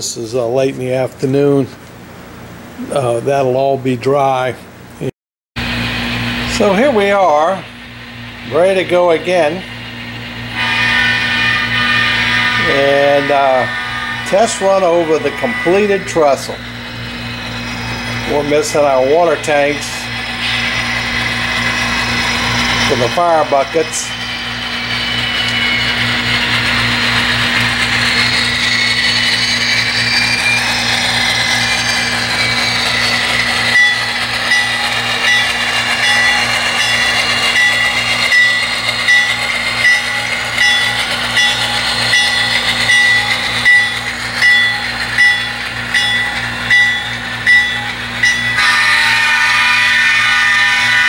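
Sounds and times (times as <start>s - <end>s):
model locomotive engine hum: 0.0s - 51.0s
locomotive bell ringing: 6.4s - 51.0s.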